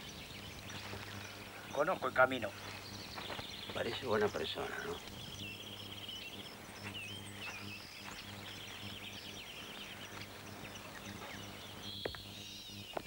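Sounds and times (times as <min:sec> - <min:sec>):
birds chirping and trilling: 0:00.0 - 0:13.0
steady low hum: 0:00.0 - 0:13.0.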